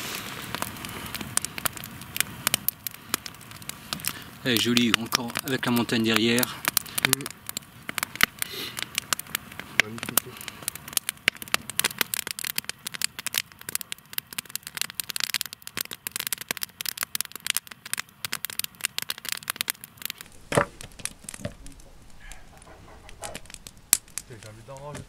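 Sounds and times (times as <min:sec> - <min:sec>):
dense crackling and clicking: 0:00.0 - 0:25.0
low rumble: 0:20.0 - 0:25.0.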